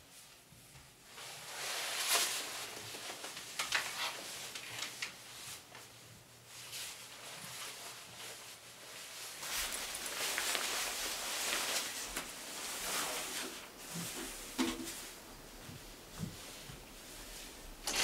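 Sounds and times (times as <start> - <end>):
backpack fabric rustling: 6.6 - 14.2.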